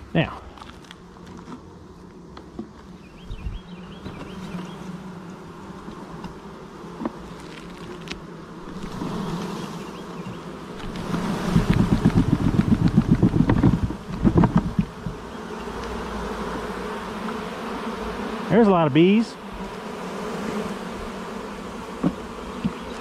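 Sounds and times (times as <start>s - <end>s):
bees buzzing: 0.0s - 23.0s
wooden box knocking: 11.6s - 15.2s.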